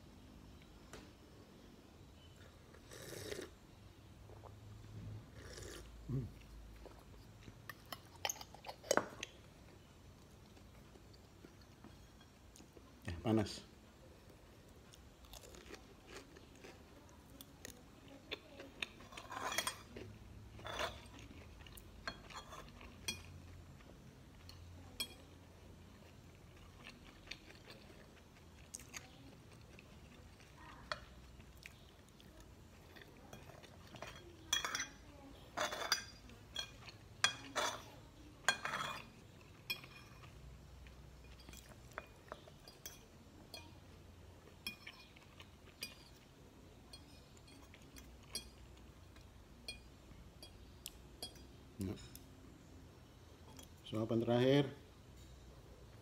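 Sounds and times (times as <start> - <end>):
chewing: 14.3 - 49.8
cutlery clinking on a ceramic plate: 19.0 - 23.5, 33.3 - 39.1, 39.7 - 40.4, 44.6 - 46.2.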